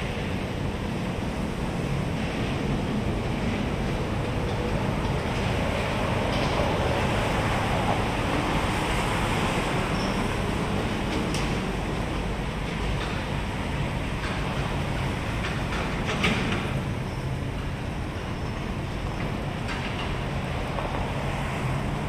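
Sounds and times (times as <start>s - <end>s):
outdoor background noise: 0.0s - 22.0s.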